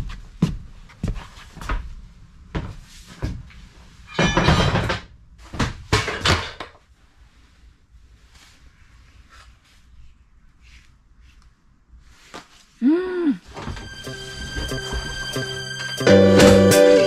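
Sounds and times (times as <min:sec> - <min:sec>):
clattering rustling noises: 0:13.5 - 0:16.0.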